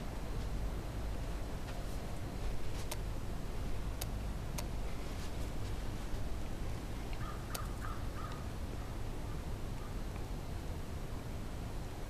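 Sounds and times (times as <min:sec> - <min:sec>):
steady low rumble: 0:00.0 - 0:12.0
crow cawing: 0:07.2 - 0:08.5.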